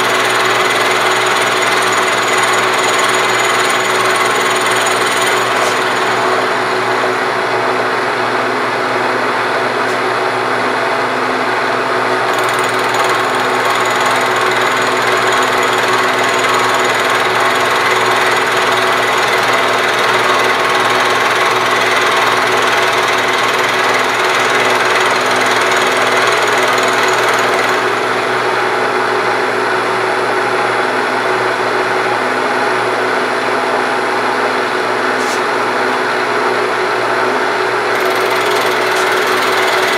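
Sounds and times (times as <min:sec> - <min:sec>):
tool grinding metal: 0:00.0 - 0:06.8, 0:12.3 - 0:28.3, 0:37.9 - 0:39.9.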